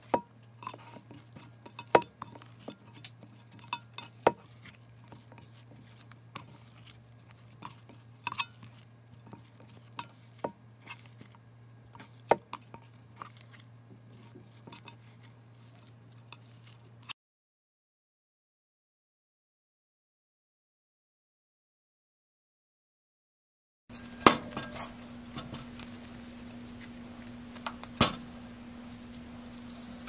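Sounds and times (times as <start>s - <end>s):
dough squishing: 0.0s - 17.1s, 23.9s - 30.0s
steady low hum: 23.9s - 30.0s.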